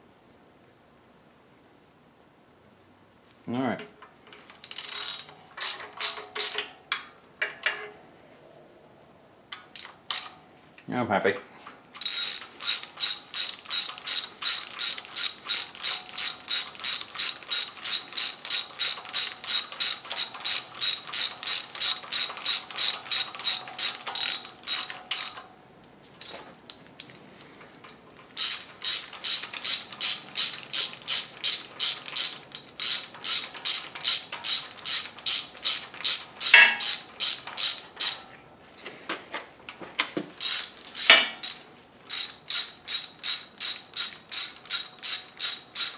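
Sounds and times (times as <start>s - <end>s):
hand ratchet clicking: 4.4s - 6.7s, 9.6s - 10.4s, 12.0s - 25.5s, 28.4s - 38.2s, 40.4s - 45.9s.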